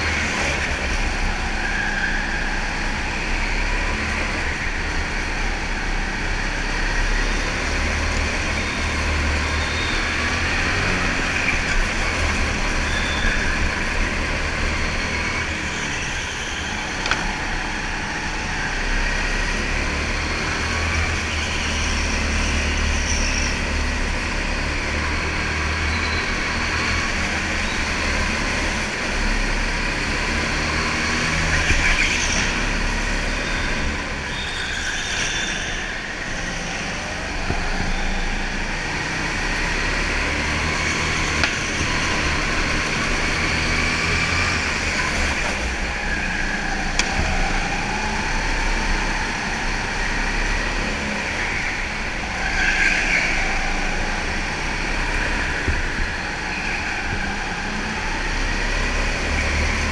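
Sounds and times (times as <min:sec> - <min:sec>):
go-kart motor at racing speed: 0:00.0 - 0:59.9
other karts running: 0:00.0 - 0:59.9.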